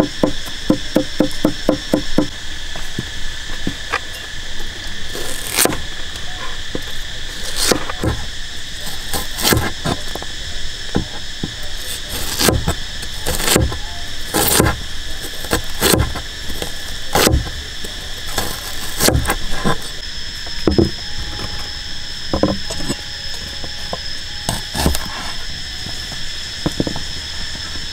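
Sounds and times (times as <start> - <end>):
cleaver chopping on wooden board: 0.0 - 2.3, 12.1 - 14.8, 15.5 - 17.6, 18.4 - 19.8
high insect drone: 0.0 - 27.9.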